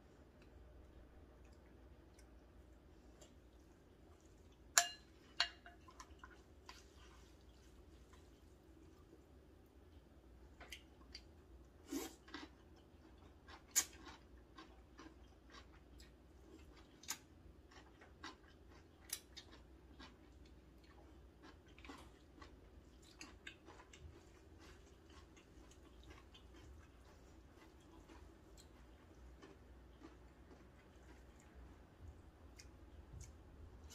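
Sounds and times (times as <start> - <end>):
person slurping and chewing noodles: 10.7 - 33.9.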